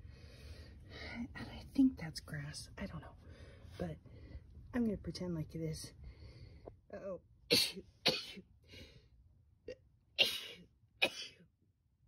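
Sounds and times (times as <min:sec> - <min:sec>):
woman sneezing: 0:07.5 - 0:08.4.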